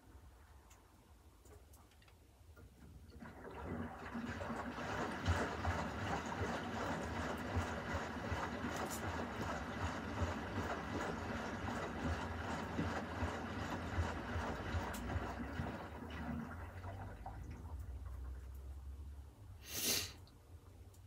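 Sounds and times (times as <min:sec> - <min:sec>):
washing machine low hum: 0:02.4 - 0:19.6
water sloshing in washing machine: 0:02.6 - 0:19.0.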